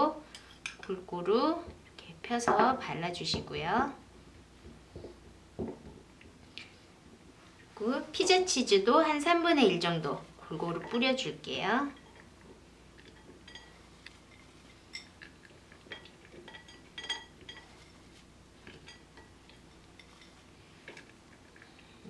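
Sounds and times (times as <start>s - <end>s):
glass bowls clinking: 13.0s - 15.3s, 15.9s - 17.9s.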